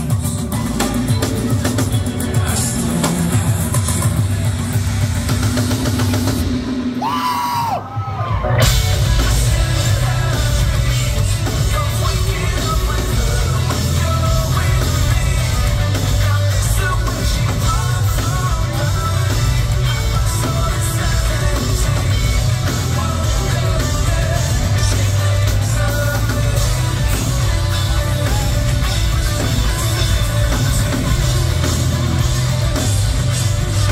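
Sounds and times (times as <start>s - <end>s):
live rock band playing: 0.0s - 33.9s
person singing: 8.6s - 33.9s.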